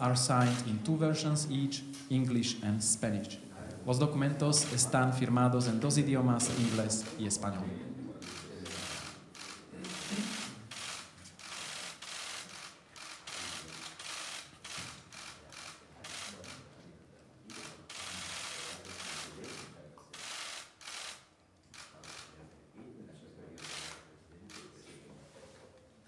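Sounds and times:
camera shutters clicking: 0.3s - 0.7s, 4.5s - 5.0s, 6.4s - 7.3s, 8.2s - 16.6s.

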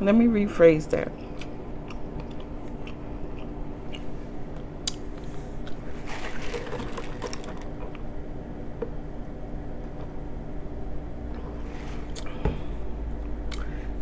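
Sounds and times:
chewing with wet clicks: 1.3s - 5.0s, 13.4s - 13.7s.

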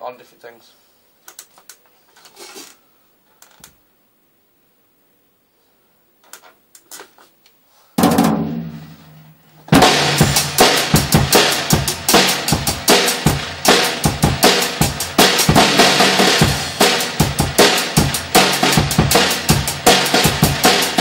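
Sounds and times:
loud ringing drum hit: 8.0s - 21.0s
fast strokes across drums and cymbal: 9.7s - 21.0s.

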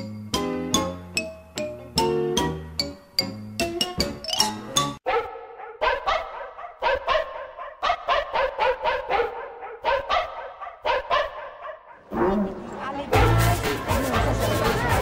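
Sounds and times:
dogs barking: 5.0s - 13.6s.

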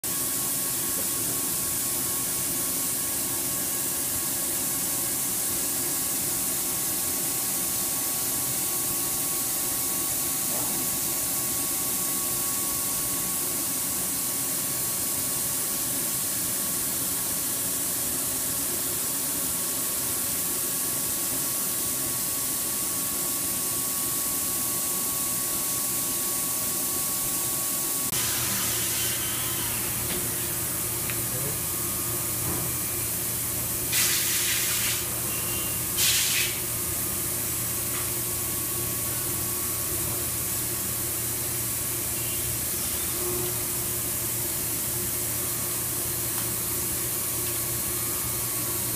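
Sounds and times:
thin machine whine: 24.1s - 34.0s, 35.0s - 48.9s
low machine hum: 27.5s - 34.0s
coolant spray hissing: 33.9s - 35.1s, 36.0s - 36.6s.

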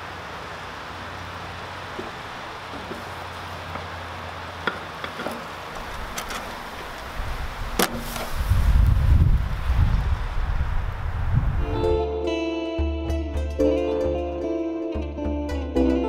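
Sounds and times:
meat sizzling on charcoal grill: 5.4s - 9.9s.

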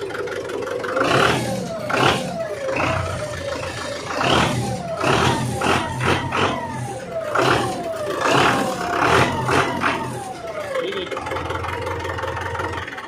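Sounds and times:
tractor diesel engine revving: 0.0s - 13.0s.

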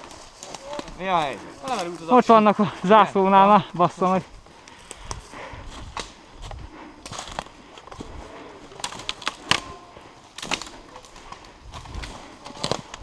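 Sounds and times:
twigs snapping: 0.0s - 2.2s, 4.6s - 13.0s
footsteps crunching dry leaves: 0.0s - 2.5s.

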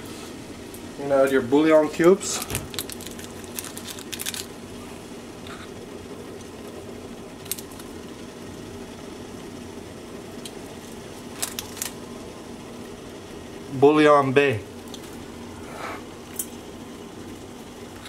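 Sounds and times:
steady low hum: 0.0s - 18.0s
foil wrappers crinkling: 2.2s - 4.6s, 10.9s - 12.0s
cubes crumbling into pot: 2.6s - 4.6s.

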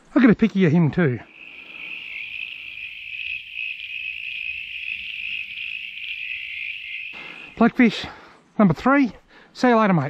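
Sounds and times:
crickets chirping: 1.2s - 8.2s.

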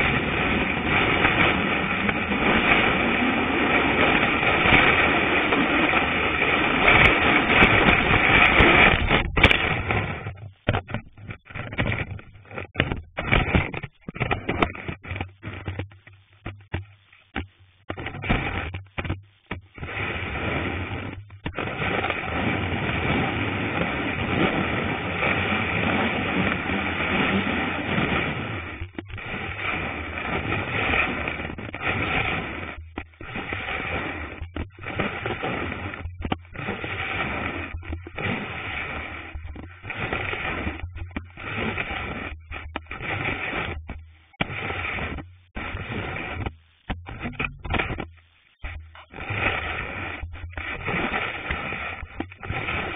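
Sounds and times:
ski scraping over snow: 0.0s - 15.8s, 19.8s - 52.9s.

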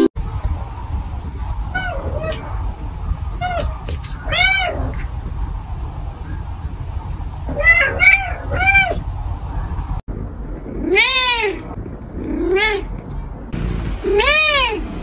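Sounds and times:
cats meowing: 3.4s - 5.0s, 7.5s - 9.0s, 10.8s - 12.9s.

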